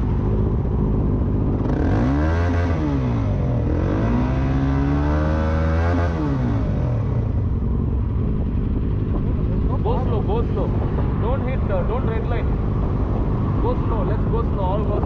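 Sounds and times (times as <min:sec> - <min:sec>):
motorcycle engine revving: 0:00.0 - 0:15.0.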